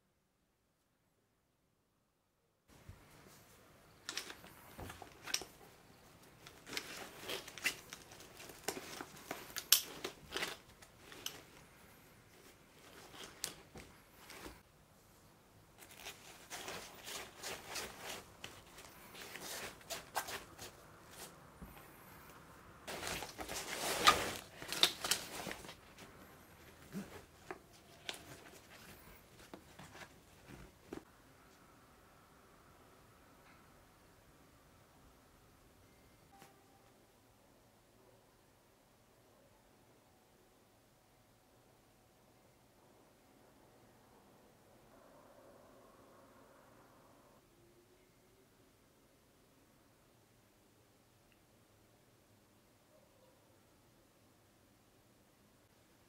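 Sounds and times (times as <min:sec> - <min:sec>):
backpack fabric rustling: 0:04.0 - 0:14.7, 0:15.8 - 0:21.7, 0:22.9 - 0:31.1.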